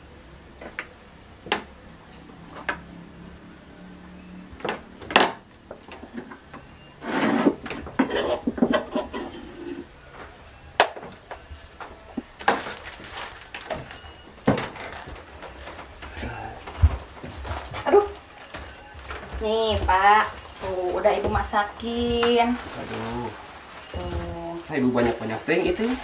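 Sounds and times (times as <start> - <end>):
scraping rustle: 6.9 - 10.4, 11.4 - 26.0
dishes clinking and knocking: 7.4 - 9.8.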